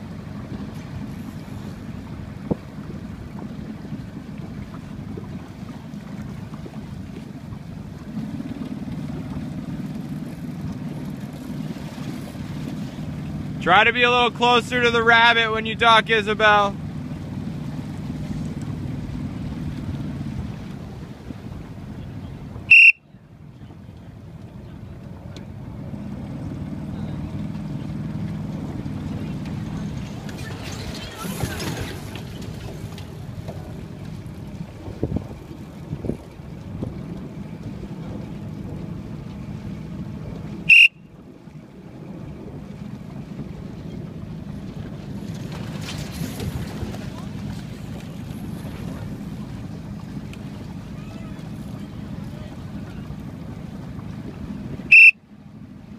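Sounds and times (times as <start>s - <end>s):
motorboat engine rumbling: 0.0s - 55.9s
water wash: 0.0s - 55.9s
wind: 0.0s - 55.9s
high-pitched whistle blast: 22.7s - 23.0s, 40.7s - 41.1s, 54.9s - 55.2s
short high-pitched beep: 22.7s - 23.0s, 40.7s - 41.0s, 54.9s - 55.2s
wind on microphone: 28.0s - 55.0s.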